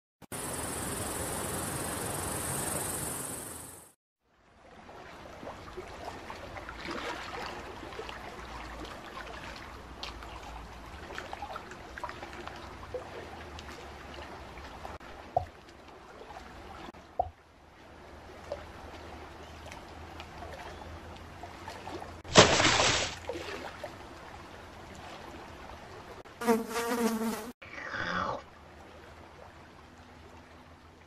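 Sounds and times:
water trickling and gurgling: 4.4 - 22.2
faint water drips: 4.6 - 22.2
water plops: 5.0 - 17.4, 19.6 - 23.9.

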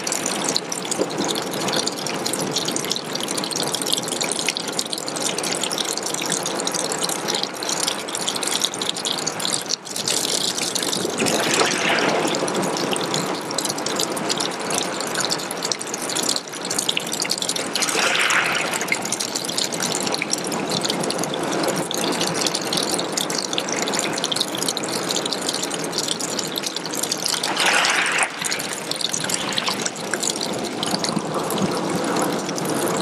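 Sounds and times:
water rushing: 0.0 - 2.4, 10.4 - 14.3, 17.3 - 24.9, 25.6 - 33.0
water trickling onto pebbles: 0.0 - 33.0.

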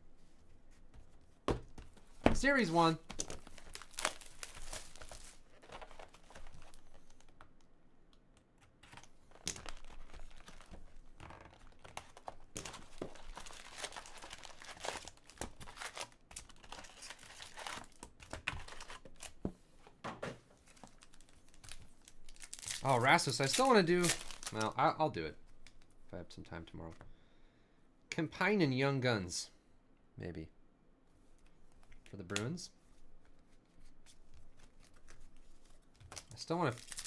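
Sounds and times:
plastic and foil packs crinkling: 2.4 - 7.5, 8.9 - 19.4, 20.6 - 24.9, 34.8 - 37.0
packaging tearing: 2.5 - 6.8, 11.5 - 19.3, 20.8 - 24.8, 36.1 - 37.0.

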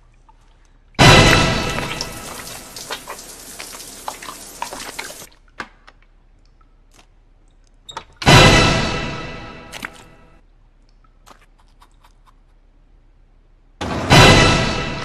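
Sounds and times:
shower spraying and dripping: 0.0 - 5.3
horror stinger chord hit: 8.3 - 9.9, 13.8 - 15.0.

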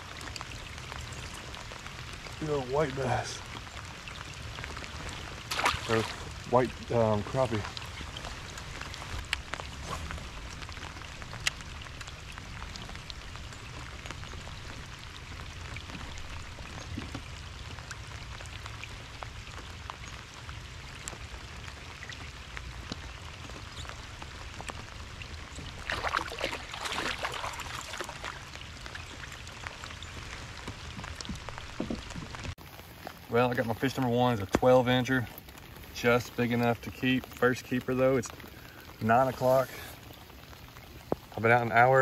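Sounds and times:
rain falling on lake: 0.0 - 42.0
raindrops ticking: 0.0 - 42.0
fish splashing at surface: 5.4 - 6.3, 25.8 - 28.4.

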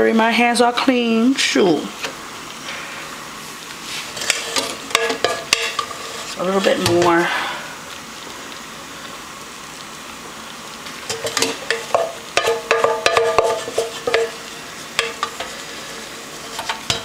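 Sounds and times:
metal spoon tapping a mixing bowl: 11.9 - 13.5.

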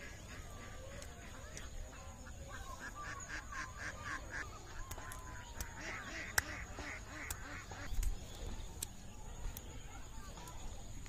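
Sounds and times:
geese or ducks calling: 0.0 - 8.0
sharp clicks: 7.2 - 9.7.

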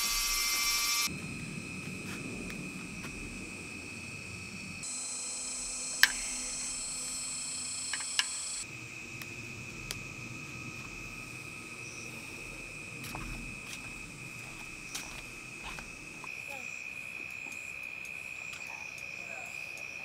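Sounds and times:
crickets chirping: 0.0 - 20.0
shrill insect chorus: 0.0 - 20.0
sharp clicks: 5.6 - 8.6.

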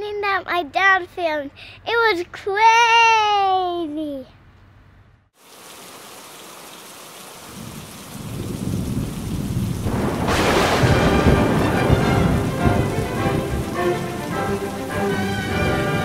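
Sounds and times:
steady rain: 5.4 - 16.0
thunder rumbling: 7.5 - 16.0
loud thunder peal: 7.6 - 16.0.

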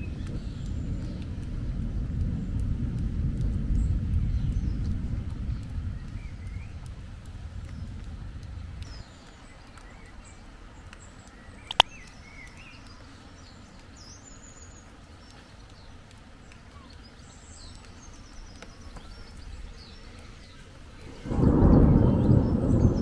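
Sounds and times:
birds chirping: 0.0 - 2.8, 3.4 - 23.0
low rumble: 0.0 - 10.3, 19.0 - 23.0
low outdoor background: 0.0 - 23.0
sharp click: 11.6 - 12.1.

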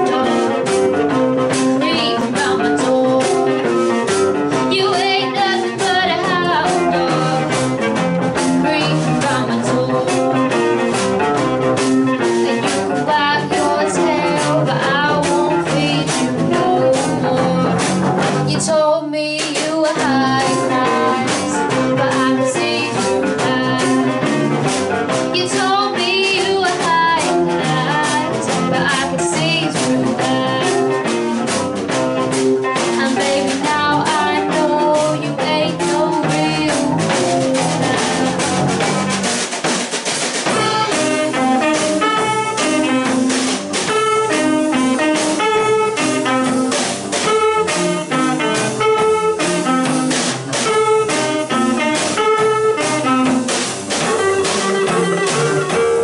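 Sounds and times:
woman singing: 0.0 - 0.8, 1.4 - 10.8, 12.2 - 24.6, 25.3 - 31.3, 32.7 - 38.8, 40.4 - 43.3
bass guitar: 0.0 - 56.0
drums: 0.0 - 56.0
electric guitar: 0.0 - 56.0.

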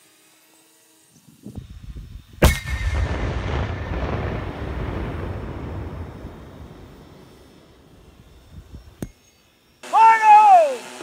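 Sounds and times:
anvil blast bang: 2.4 - 6.4
low rumbling echo: 2.4 - 9.0.

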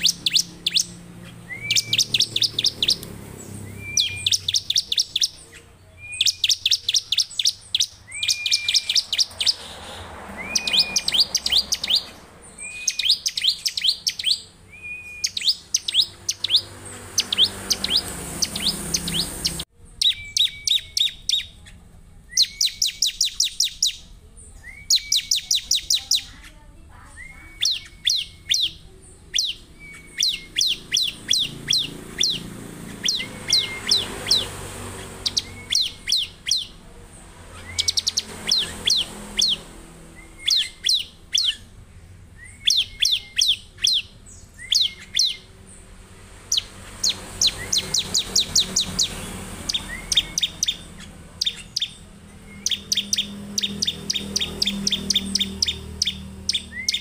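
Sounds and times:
bird singing high notes: 0.0 - 21.6, 22.2 - 36.8, 37.4 - 57.0.

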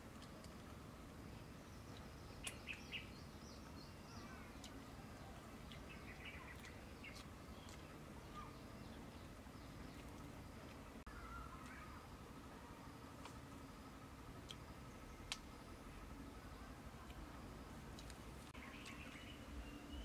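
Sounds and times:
faint outdoor ambience: 0.0 - 20.0
bird chirps: 1.6 - 12.1, 18.5 - 20.0
sharp crunching clicks: 17.9 - 19.0.

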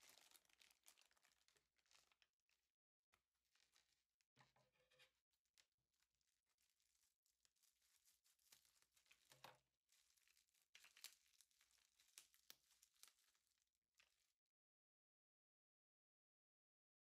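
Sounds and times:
faint crinkling and rustling: 0.0 - 14.4.

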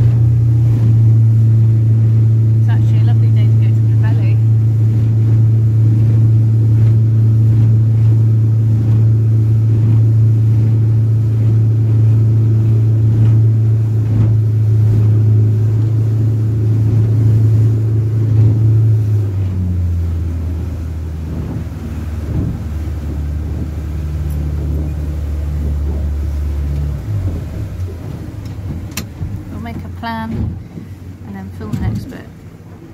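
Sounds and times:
motorboat engine droning: 0.0 - 32.9.

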